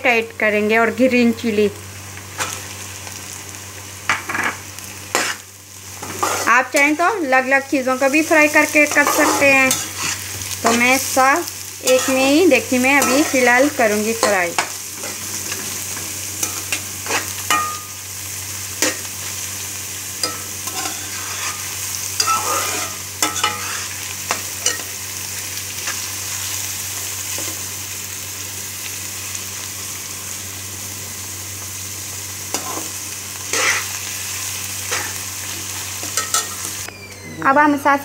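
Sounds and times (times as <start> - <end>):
vegetables sizzling in a pan: 0.0 - 38.0
metal turner scraping pan: 6.0 - 6.6, 8.8 - 10.9, 13.0 - 15.8, 16.4 - 17.8, 20.2 - 23.9, 33.5 - 33.9.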